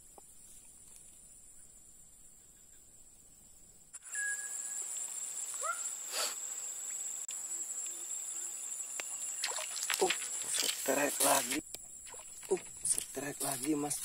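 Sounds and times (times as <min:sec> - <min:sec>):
insect chorus trilling: 0:00.0 - 0:14.0
short chirps: 0:04.0 - 0:04.8.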